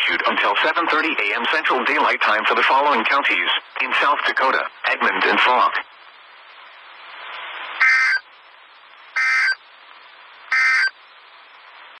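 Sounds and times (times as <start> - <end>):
radio static: 0.0 - 5.9, 6.5 - 8.3
digital data tone bursts: 9.2 - 9.6, 10.5 - 10.9.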